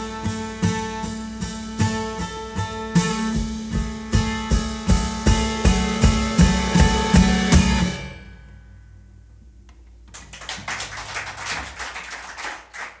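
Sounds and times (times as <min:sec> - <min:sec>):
drum strikes: 0:00.0 - 0:08.4
acoustic guitar: 0:00.0 - 0:10.4
audience clapping: 0:10.1 - 0:13.0.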